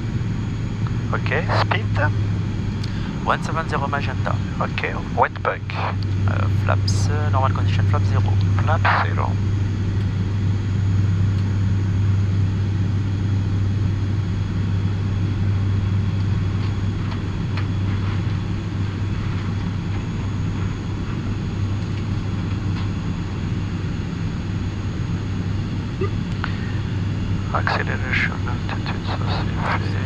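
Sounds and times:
turboprop engines droning: 0.0s - 30.0s
airflow noise: 25.4s - 30.0s.

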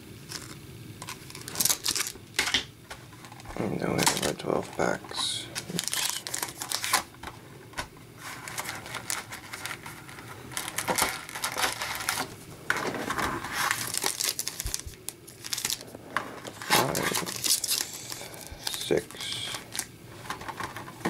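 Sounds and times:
card pack wrappers crinkling: 0.2s - 21.0s.

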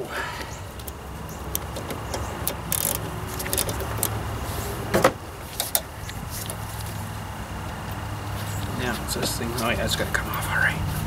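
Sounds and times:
hand tools clicking on metal: 0.8s - 4.2s.

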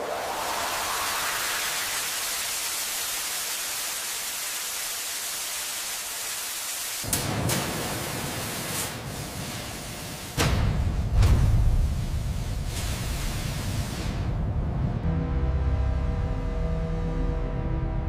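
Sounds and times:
steady rushing hiss: 0.0s - 14.5s
deep rumble: 10.5s - 18.0s.

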